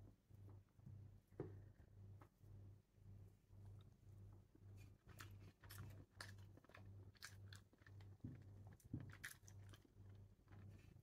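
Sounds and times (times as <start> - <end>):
faint chewing: 3.6 - 11.0.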